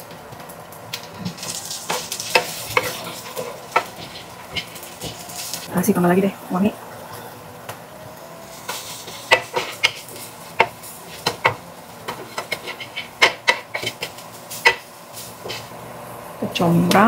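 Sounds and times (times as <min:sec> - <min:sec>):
metal utensils clinking on frying pan: 0:01.3 - 0:05.7.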